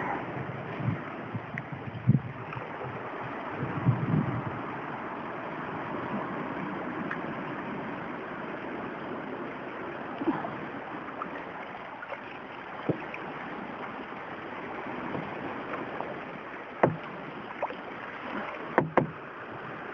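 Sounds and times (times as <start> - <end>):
water sloshing around hull: 0.0 - 19.9
knocks and splashes: 11.6 - 13.4, 16.7 - 19.3.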